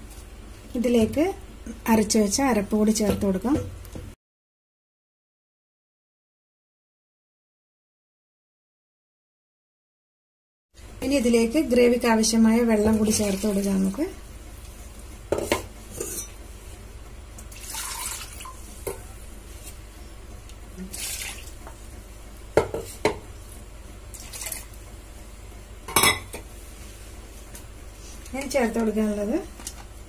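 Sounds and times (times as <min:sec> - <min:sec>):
water pouring into pot: 0:17.5 - 0:18.6, 0:20.8 - 0:21.6, 0:24.1 - 0:24.7.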